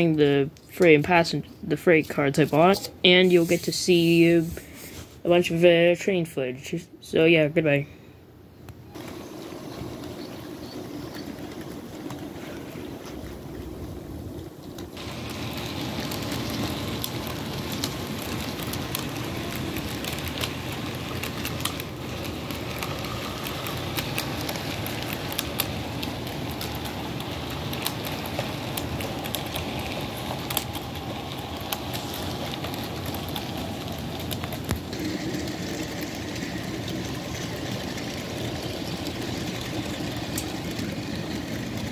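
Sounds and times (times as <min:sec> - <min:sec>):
wheels clicking on rails: 0:08.9 - 0:41.9
model train rumbling: 0:09.0 - 0:41.9.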